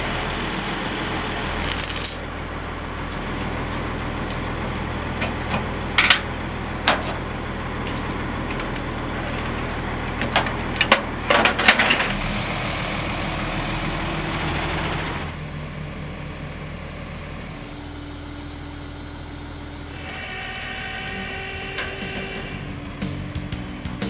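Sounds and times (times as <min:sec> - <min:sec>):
truck engine running: 0:00.0 - 0:24.0
background music: 0:21.6 - 0:24.0.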